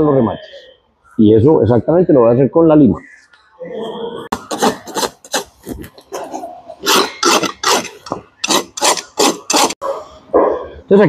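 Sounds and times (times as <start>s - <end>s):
rasp scraping hoof: 4.3s - 9.8s.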